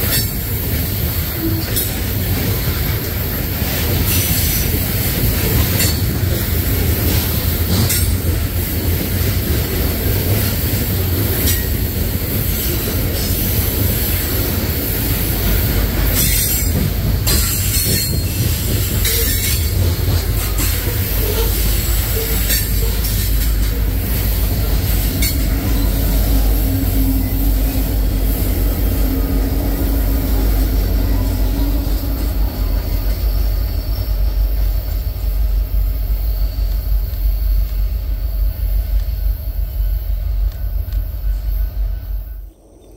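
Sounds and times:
hopper cars rolling past: 0.0 - 35.9
wheels clicking on rail joints: 0.0 - 42.4
diesel locomotive rumble: 0.0 - 42.6
wheel squeal: 16.2 - 23.8.

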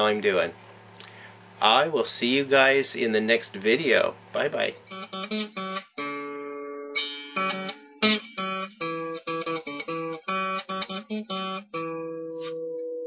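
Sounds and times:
acoustic guitar plucking and strumming: 4.8 - 13.0.

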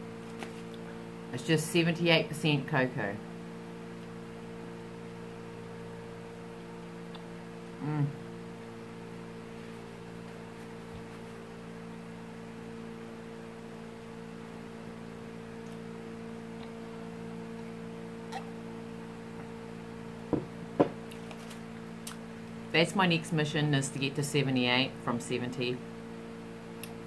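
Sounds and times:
steady low hum: 0.0 - 27.0
woman's voice murmuring: 7.8 - 8.2.

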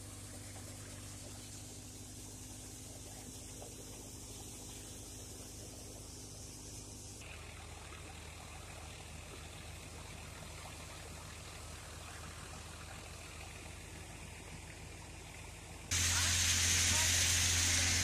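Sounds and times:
thresher running: 15.9 - 18.0.

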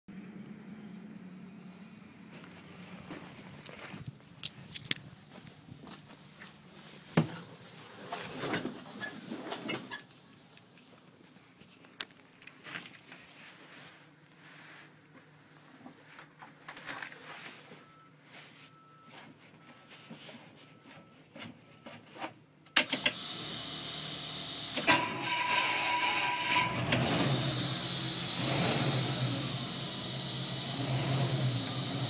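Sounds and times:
engine starting and revving: 22.9 - 32.0.

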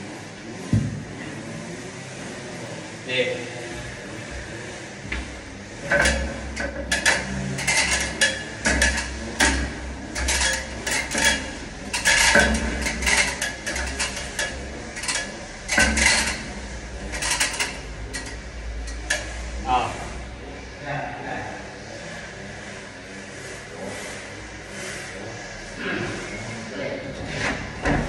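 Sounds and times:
insulator and metal fittings clinking: 5.8 - 19.6.

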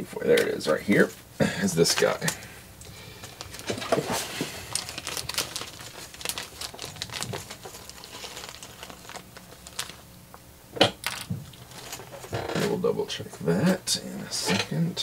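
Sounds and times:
small parts crinkling and rustling: 0.7 - 12.8.

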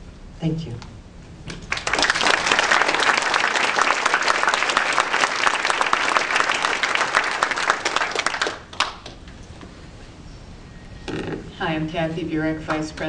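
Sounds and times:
audience applauding: 1.6 - 9.2.

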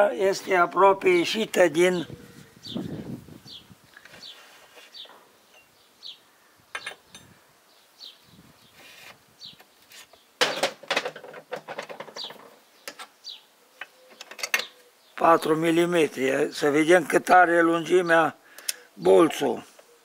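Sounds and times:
bird chirping: 1.2 - 10.8, 12.0 - 16.7.

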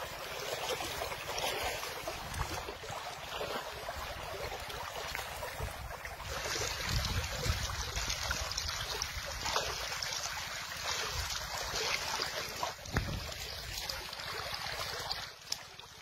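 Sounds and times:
river water flowing: 0.0 - 16.0
wind buffeting microphone: 2.0 - 3.2, 3.8 - 9.6, 12.8 - 14.0.

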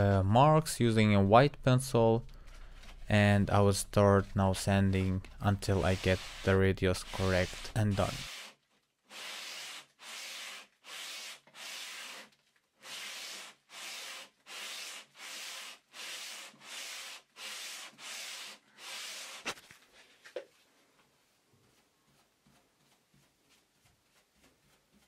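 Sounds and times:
sanding block rubbing on wood: 5.6 - 8.5, 9.1 - 19.6.

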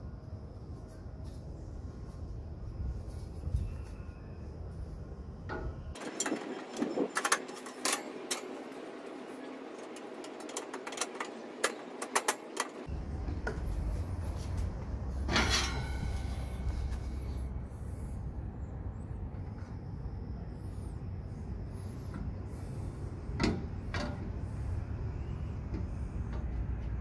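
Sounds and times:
metal rattle: 5.5 - 13.5, 15.1 - 17.3
metal panels clicking and knocking: 5.5 - 13.6, 23.4 - 24.4
low steady rumble: 12.8 - 27.0.

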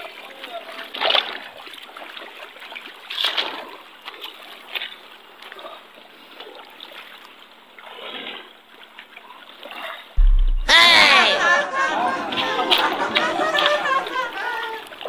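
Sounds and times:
feet wading through shallow water: 0.0 - 10.6.

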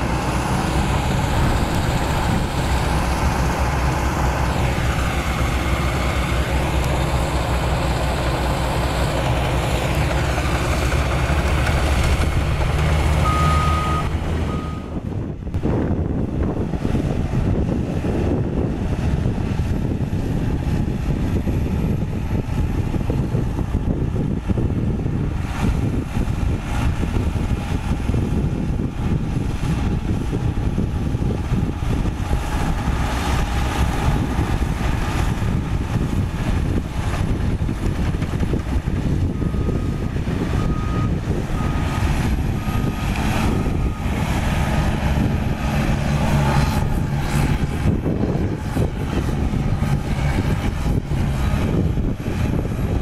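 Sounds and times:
diesel engine running under load: 0.0 - 53.0.

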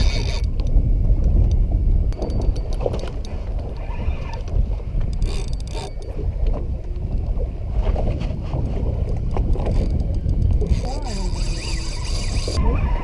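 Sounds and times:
fishing reel clicking: 0.0 - 0.7, 5.1 - 6.2, 9.6 - 12.6
water slapping boat hull: 0.0 - 13.0
wind buffeting microphone: 0.0 - 13.0.

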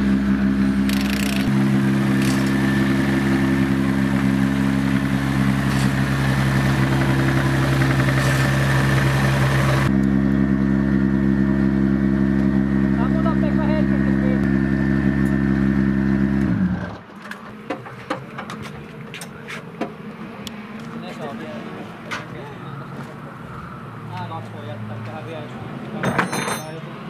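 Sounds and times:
car engine idling: 0.0 - 17.1.

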